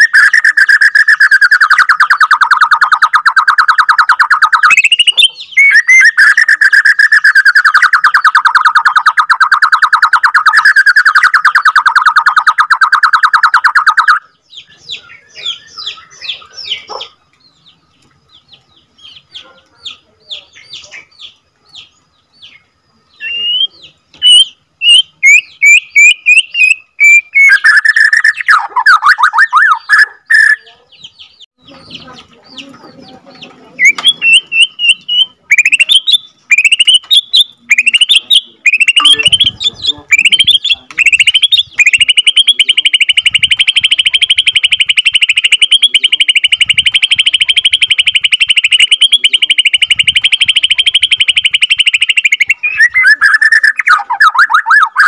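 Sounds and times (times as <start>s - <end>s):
bird rolling trill: 0.0s - 14.2s, 33.6s - 55.0s
bird singing whistled notes: 0.0s - 32.7s, 33.7s - 55.0s.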